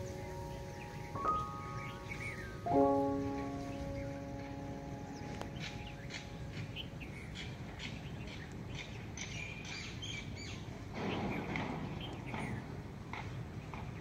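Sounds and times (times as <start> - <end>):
low background hiss: 0.0 - 11.0
small birds chirping: 0.0 - 14.0.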